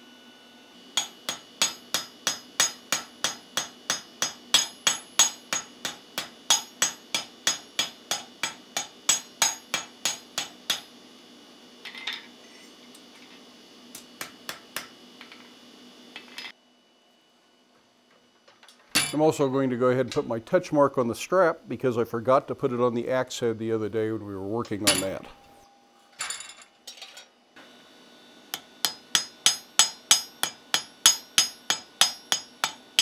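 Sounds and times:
hammer ringing on steel: 1.0s - 10.8s, 24.8s - 25.6s, 28.5s - 33.0s.

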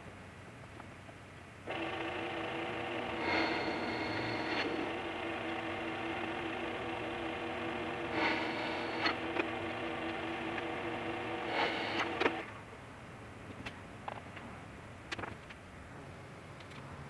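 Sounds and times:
drill press motor humming: 1.7s - 12.6s
short rasping noises: 2.9s - 12.4s.

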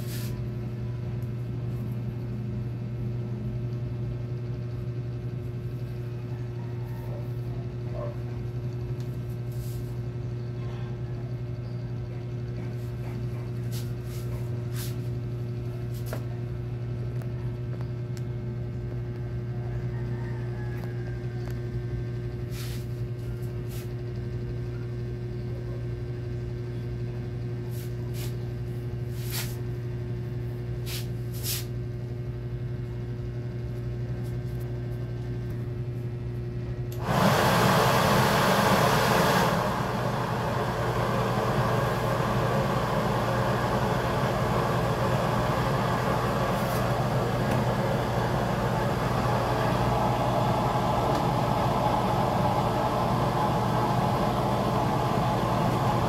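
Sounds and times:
hair dryer blowing through pipe: 36.9s - 56.0s.

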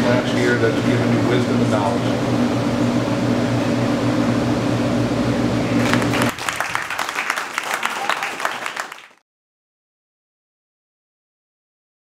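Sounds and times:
low room hum: 0.0s - 9.1s
people clapping: 5.8s - 9.2s.

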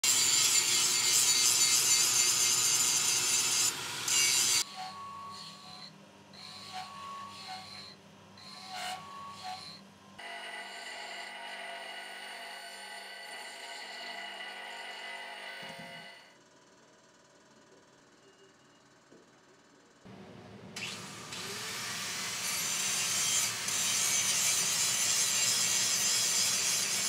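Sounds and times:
angle grinder grinding steel: 0.0s - 16.1s, 20.8s - 27.0s
grinding wheel on metal plate: 0.0s - 16.1s, 22.2s - 27.0s
bench grinder running: 0.0s - 16.3s, 20.8s - 27.0s.

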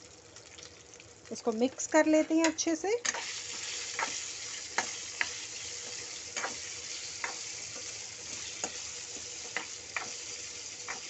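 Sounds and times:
potatoes sizzling in oil: 0.0s - 11.0s
spatula knocking frying pan: 2.4s - 11.0s.

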